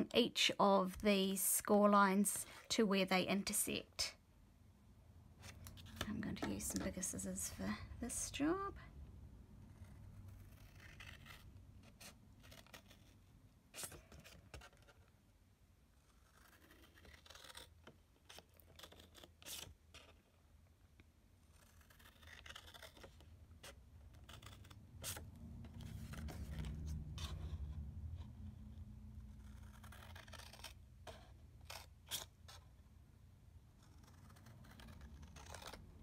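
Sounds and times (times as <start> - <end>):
scissors snipping cardstock: 5.8 - 7.2.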